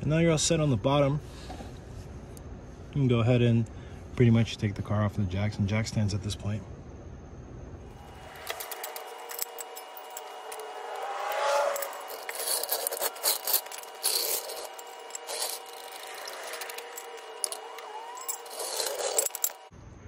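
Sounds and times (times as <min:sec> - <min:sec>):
short rising squeaks: 0:08.0 - 0:19.7
metal clinks and scraping of jack: 0:08.1 - 0:19.7.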